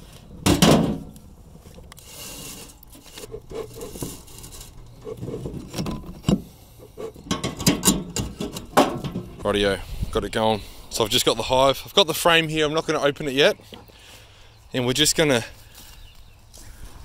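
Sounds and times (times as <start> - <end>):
knocks and metallic rattles: 0.4 - 1.1, 4.8 - 9.5.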